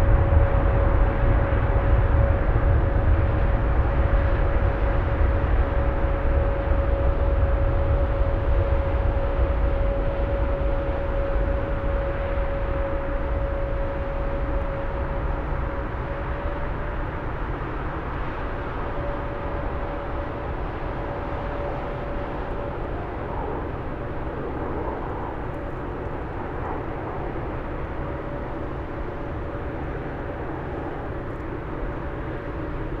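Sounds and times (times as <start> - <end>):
jet engine roar at takeoff: 0.0 - 33.0.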